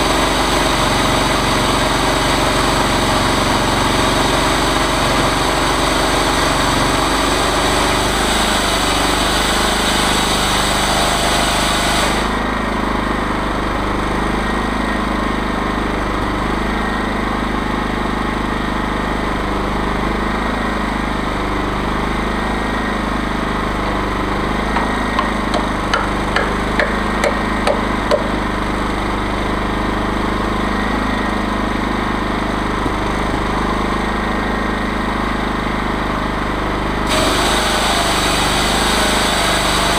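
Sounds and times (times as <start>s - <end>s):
chainsaw mill engine running: 0.0s - 39.9s
sharp taps: 24.8s - 28.4s.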